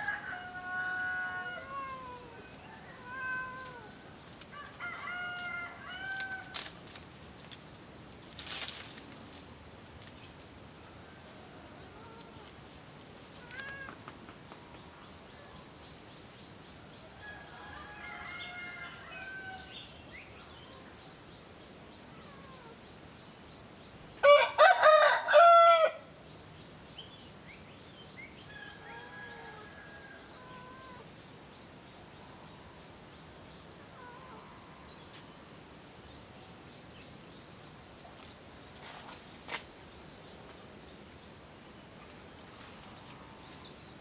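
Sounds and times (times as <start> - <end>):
rooster crowing: 0.0 - 3.9, 4.5 - 6.5, 17.2 - 19.8, 24.2 - 26.1, 28.5 - 31.0
faint bird calls: 0.3 - 6.6, 10.8 - 15.7, 22.0 - 22.9, 28.9 - 31.3, 33.8 - 35.3.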